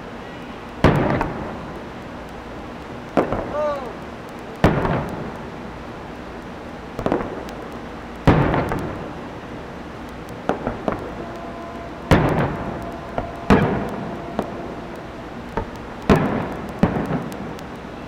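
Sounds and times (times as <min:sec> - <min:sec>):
light firework pops: 0:00.7 - 0:05.6, 0:06.3 - 0:09.3, 0:10.0 - 0:18.0
firework booms with echo: 0:00.8 - 0:01.6, 0:03.2 - 0:03.6, 0:04.6 - 0:05.5, 0:07.0 - 0:07.5, 0:08.2 - 0:09.2, 0:10.4 - 0:17.6.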